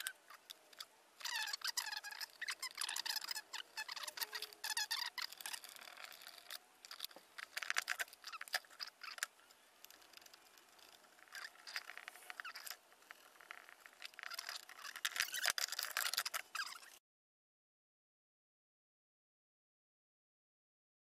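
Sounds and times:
clicks and scrapes of wiring: 0.0s - 17.0s
plastic squeaks: 0.0s - 17.0s.

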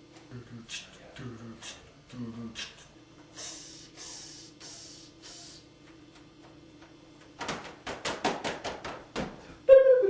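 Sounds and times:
breathy hissing: 3.3s - 5.7s
sharp slaps or clicks: 7.4s - 9.3s.

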